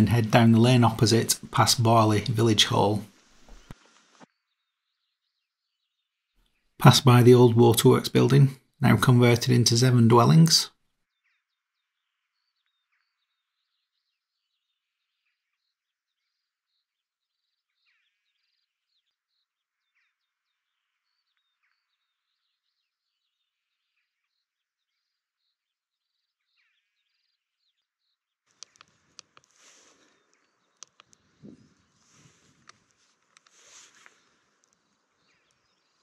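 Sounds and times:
faint birdsong: 0.0 - 36.0
sharp clicks: 28.5 - 29.6, 30.3 - 31.2.

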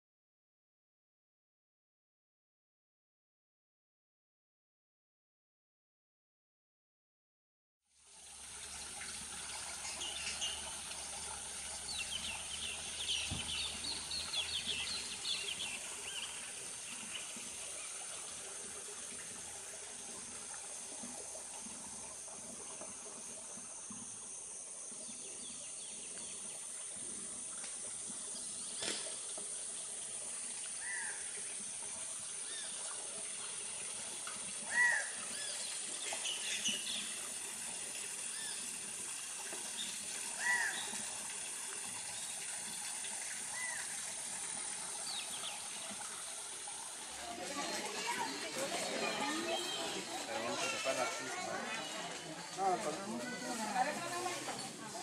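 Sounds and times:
flowing water: 7.9 - 55.0
birds chirping: 11.8 - 18.0.

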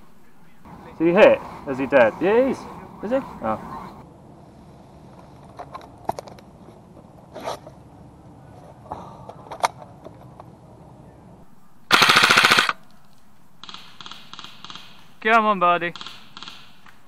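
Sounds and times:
airsoft rifle full-auto burst: 11.9 - 12.8, 13.6 - 15.1, 15.9 - 16.8.

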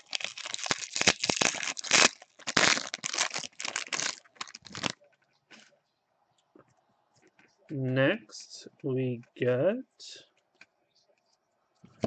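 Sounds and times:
foil wrapper crinkling: 0.0 - 5.0.

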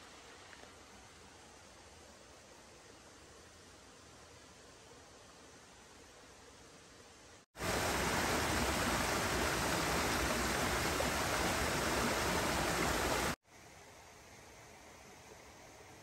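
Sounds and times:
faint hiss: 0.0 - 16.0
stream rushing over boulders: 7.6 - 13.4.

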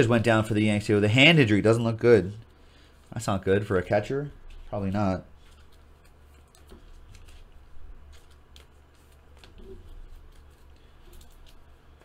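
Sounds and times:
low steady hum: 0.0 - 12.0
cards and packaging clicking: 5.4 - 12.0.

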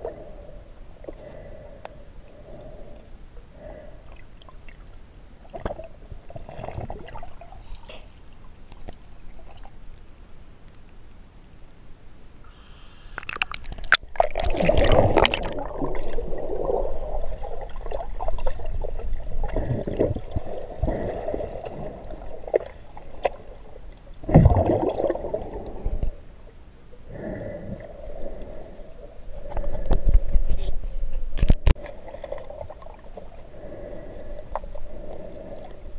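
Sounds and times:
muffled water gurgling and sloshing: 0.0 - 12.4, 13.2 - 35.9.

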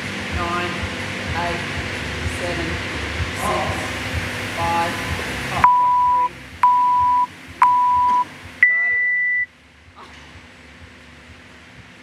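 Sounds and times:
countdown timer beeps: 5.6 - 9.5.

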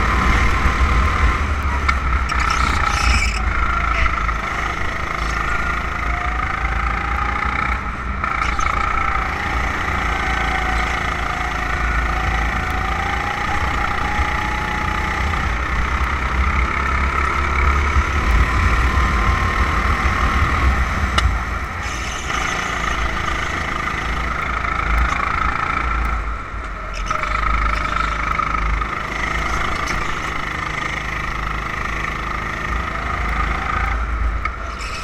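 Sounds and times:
kart engine running: 0.0 - 35.0
wind rumble on microphone: 11.9 - 22.8.

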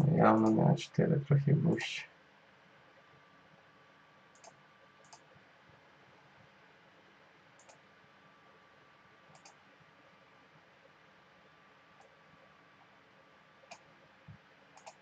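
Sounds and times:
computer mouse clicks: 4.3 - 5.3, 7.6 - 7.8, 9.3 - 9.6, 13.7 - 13.9, 14.7 - 15.0.

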